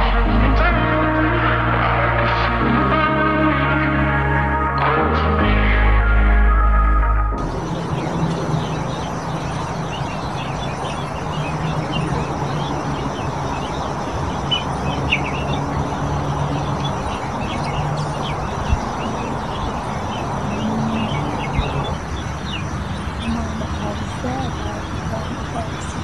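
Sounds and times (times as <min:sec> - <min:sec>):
birds chirping: 0:07.4 - 0:26.0
steady rushing noise: 0:07.4 - 0:26.0.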